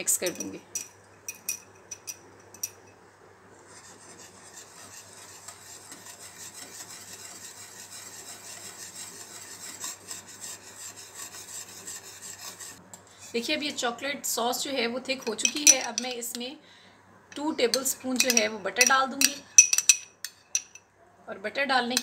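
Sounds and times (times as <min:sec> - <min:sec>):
whisk scraping a saucepan: 0:03.6 - 0:13.6, 0:17.7 - 0:20.6
whisk clinking on pan: 0:15.3 - 0:16.2, 0:17.7 - 0:20.8.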